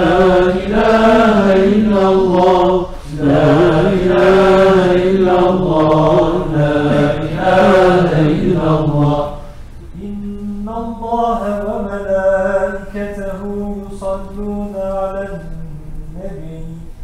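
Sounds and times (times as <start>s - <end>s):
man chanting a prayer: 9.2s - 17.0s.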